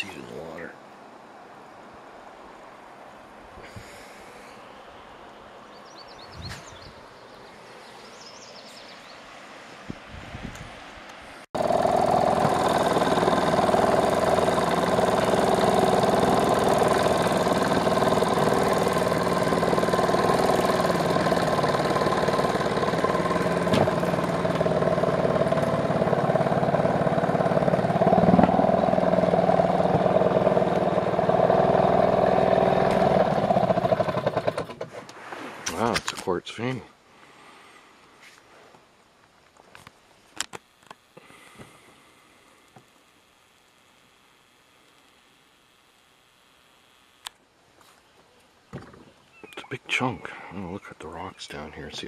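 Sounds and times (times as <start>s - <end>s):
outboard motor running: 11.6s - 35.1s, 48.7s - 50.8s.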